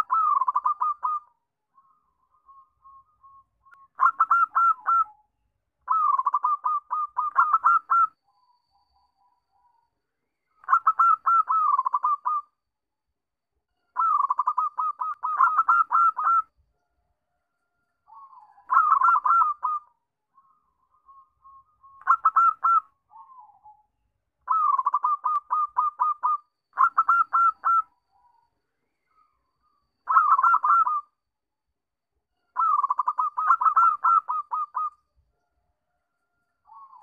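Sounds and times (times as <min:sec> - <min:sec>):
dove cooing: 0:00.0 - 0:01.3, 0:04.0 - 0:05.2, 0:05.9 - 0:08.1, 0:10.6 - 0:12.4, 0:14.0 - 0:16.5, 0:18.2 - 0:19.9, 0:22.0 - 0:23.8, 0:24.5 - 0:27.9, 0:30.1 - 0:31.0, 0:32.6 - 0:34.9.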